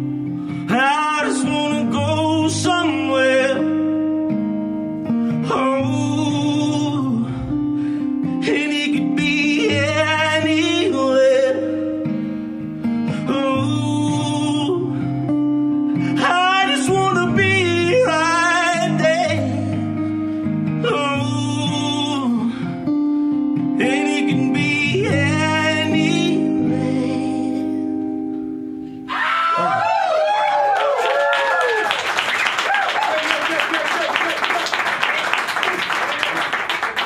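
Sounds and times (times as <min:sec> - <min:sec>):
strummed acoustic guitar: 0:00.0 - 0:29.0
person singing: 0:00.6 - 0:04.0, 0:05.3 - 0:12.2, 0:13.0 - 0:15.3, 0:15.9 - 0:22.9, 0:23.6 - 0:28.0.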